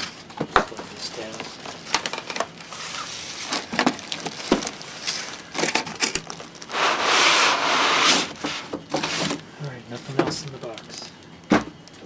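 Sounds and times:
cardboard and styrofoam scraping: 2.6s - 9.4s.

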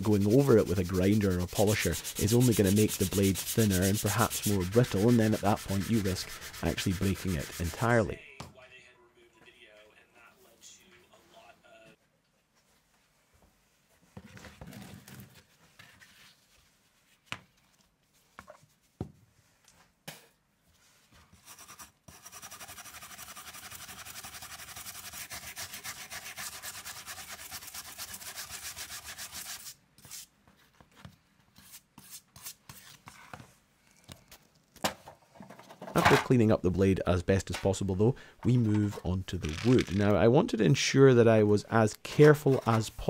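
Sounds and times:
brush scraping grit on workbench: 0.0s - 8.1s, 21.4s - 30.3s
quick scrubbing strokes: 0.0s - 8.1s.

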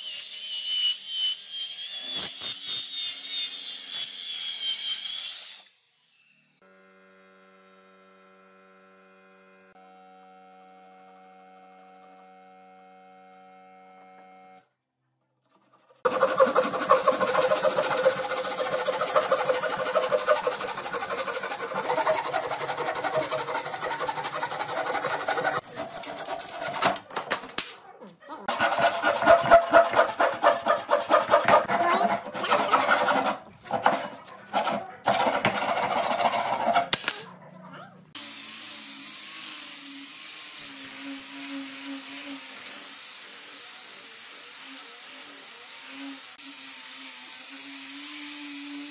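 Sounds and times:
hand saw cutting wood: 15.5s - 27.2s, 28.5s - 37.0s, 38.2s - 48.9s.

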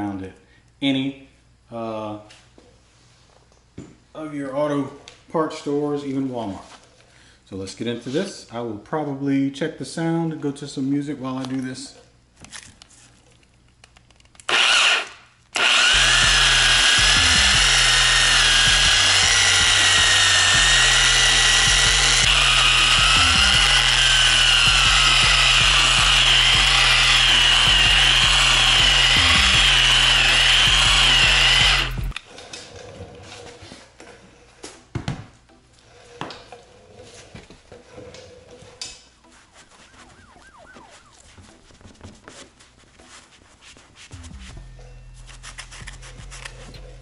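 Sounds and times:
polisher whining: 14.5s - 15.0s, 15.6s - 32.2s, 39.8s - 41.6s.

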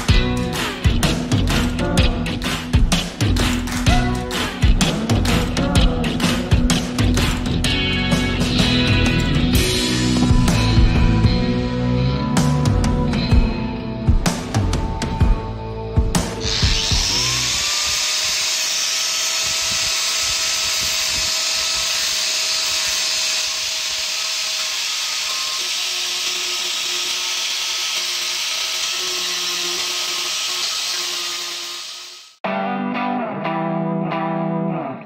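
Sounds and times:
angle grinder grinding steel: 0.0s - 11.2s, 16.2s - 32.4s
heavy rock music: 0.0s - 17.6s.

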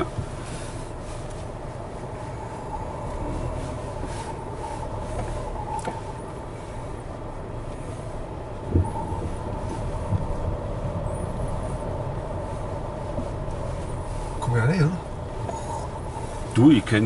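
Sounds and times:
car engine rumble on gravel: 0.0s - 17.0s.

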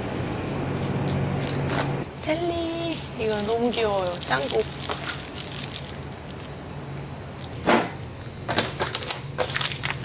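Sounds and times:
steady low hum: 0.0s - 10.0s
snack packages crinkling in basket: 2.5s - 6.6s, 8.9s - 10.0s.

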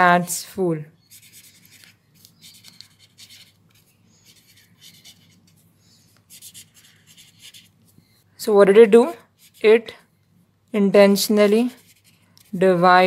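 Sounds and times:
pen scratching on paper: 1.1s - 7.8s, 11.6s - 12.8s.

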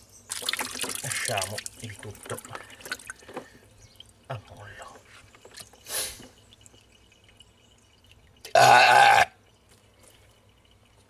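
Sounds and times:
water swishing in a tub: 0.3s - 8.5s
short burp-like sound: 8.5s - 9.4s.

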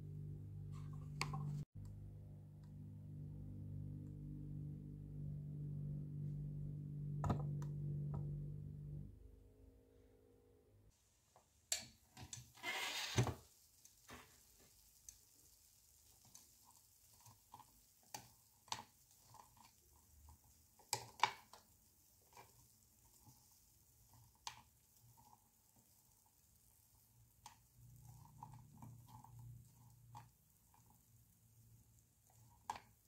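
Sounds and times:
skewer clicking and tapping: 17.2s - 23.5s.

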